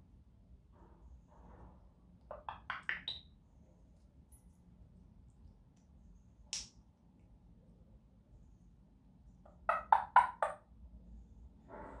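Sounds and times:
parrot calling: 9.5s - 10.6s.

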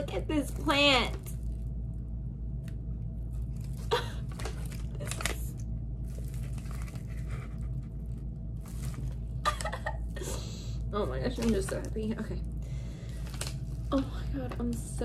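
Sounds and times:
steady low hum: 0.0s - 15.0s
plastic and paper crinkling: 3.3s - 10.4s, 11.1s - 15.0s.

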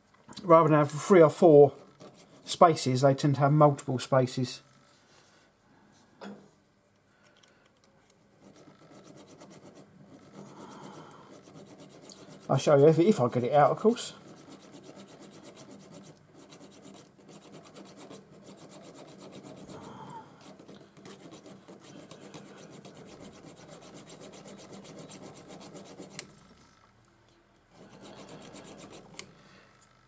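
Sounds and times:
needle file scraping metal: 8.4s - 26.4s, 27.7s - 29.3s.

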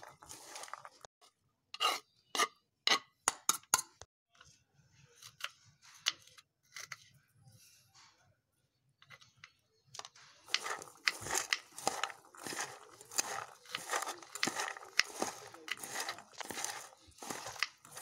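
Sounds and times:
chickpeas tossed in steel bowl: 0.0s - 1.1s, 10.4s - 18.0s.

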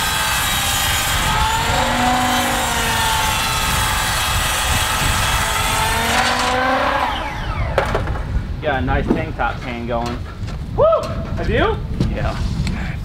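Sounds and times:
saw motor whining while cutting wood: 0.0s - 8.0s.

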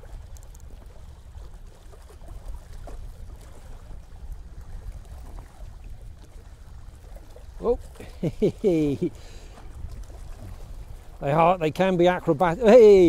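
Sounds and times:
waves lapping on rocks: 0.0s - 13.0s
wind rumble on microphone: 0.0s - 13.0s
faint ticks: 0.2s - 0.9s.

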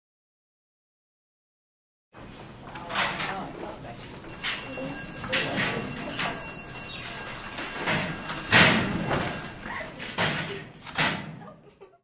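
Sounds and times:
metal lockers banging shut: 7.8s - 9.4s.

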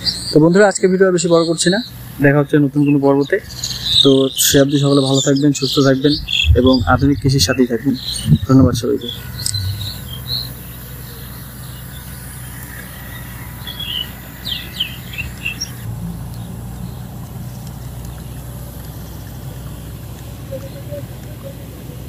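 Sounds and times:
low outdoor hum: 0.0s - 22.0s
short bird chirps: 6.1s - 11.4s.

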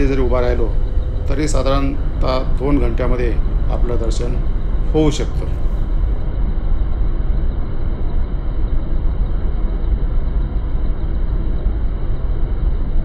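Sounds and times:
helicopter engine and rotor: 0.0s - 7.8s.

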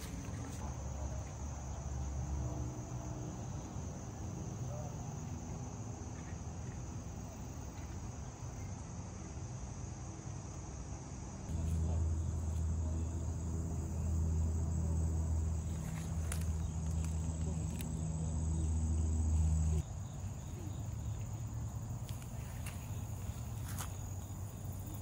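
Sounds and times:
faint low rumble: 11.5s - 25.0s
loud low machine hum: 11.5s - 25.0s.

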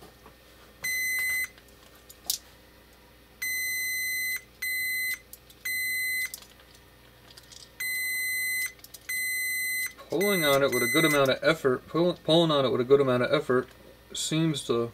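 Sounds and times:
multimeter high beep: 0.8s - 1.6s, 3.4s - 6.4s, 7.8s - 11.3s.

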